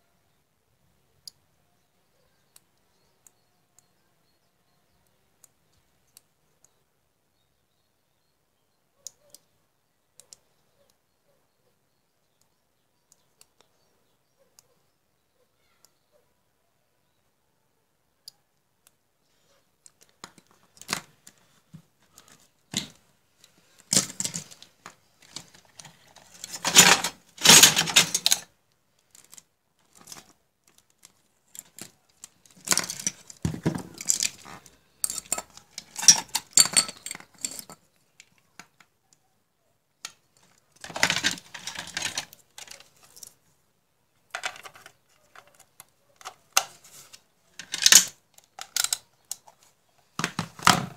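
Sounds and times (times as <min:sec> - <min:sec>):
wires and circuit board handling: 0:19.8 - 0:38.9, 0:40.0 - 0:43.5, 0:44.2 - 0:50.9.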